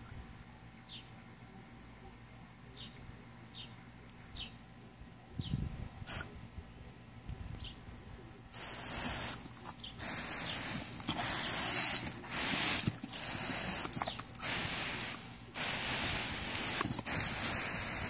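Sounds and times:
garden hose spraying water: 0:06.1 - 0:06.3, 0:08.5 - 0:18.0.

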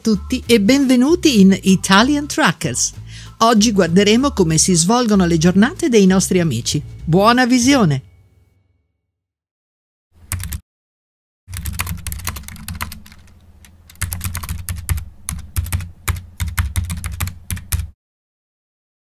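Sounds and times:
typing on laptop keyboard: 0:10.3 - 0:10.6, 0:11.5 - 0:18.0.

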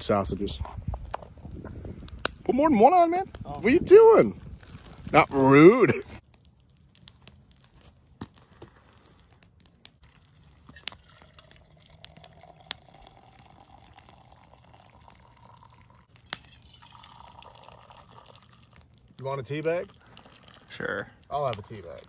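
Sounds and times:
tea pouring into mug: 0:10.8 - 0:21.1.

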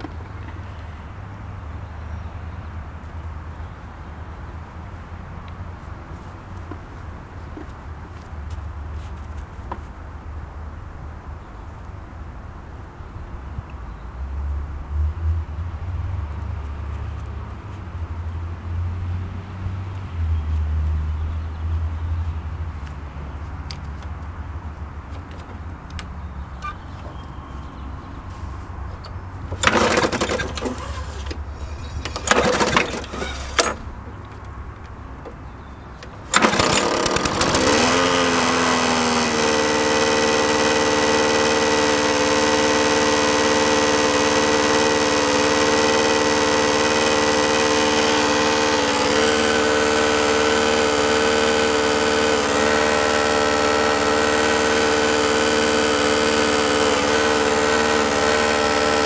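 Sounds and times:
lawn mower engine buzzing: 0:22.8 - 0:59.0
pull-cord starter tugs: 0:25.0 - 0:28.2, 0:28.8 - 0:59.0.

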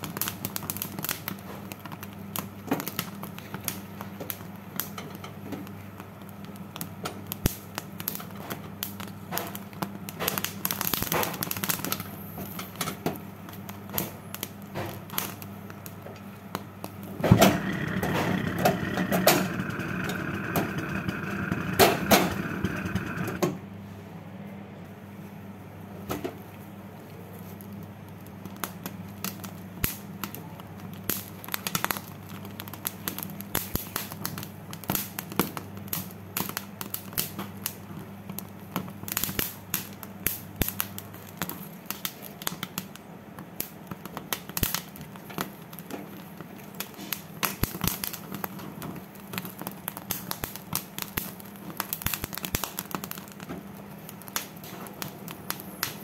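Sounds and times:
corn kernels crackling: 0:16.9 - 0:23.4, 0:44.4 - 0:56.0.

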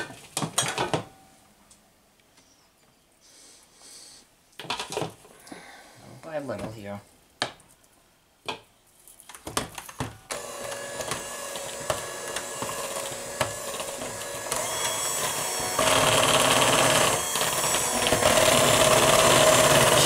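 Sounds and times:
electric hand mixer beating batter: 0:10.3 - 0:20.0.

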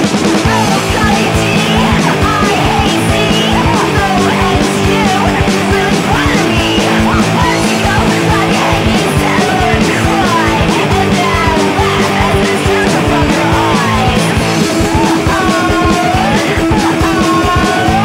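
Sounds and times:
distorted electric guitar: 0:00.0 - 0:18.0
rapid drum hits: 0:00.0 - 0:18.0.

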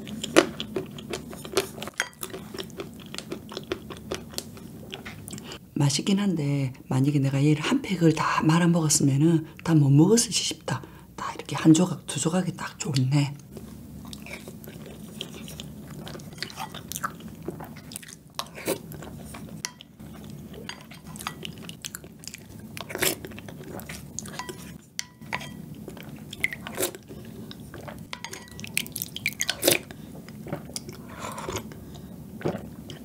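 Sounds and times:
chewing and mouth sounds: 0:00.0 - 0:05.6, 0:13.4 - 0:24.8, 0:25.8 - 0:33.0
person drinking: 0:26.3 - 0:33.0.

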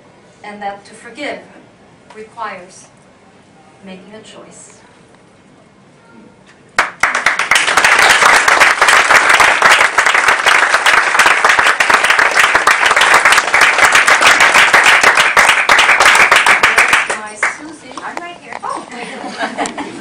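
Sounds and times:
audience applause: 0:06.8 - 0:17.6.

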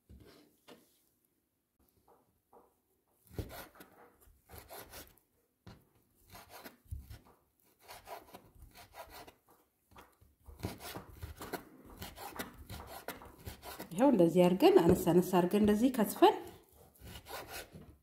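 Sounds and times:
knife chopping on wooden board: 0:03.2 - 0:13.9, 0:14.8 - 0:18.0.

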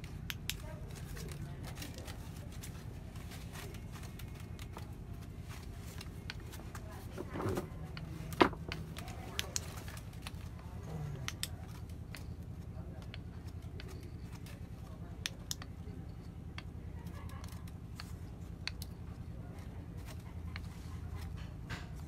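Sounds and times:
steady low hum: 0:00.0 - 0:22.0
stone clicks and light taps: 0:11.2 - 0:19.0.

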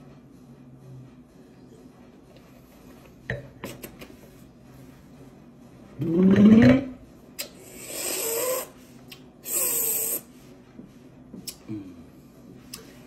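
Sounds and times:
man humming: 0:11.5 - 0:12.1.

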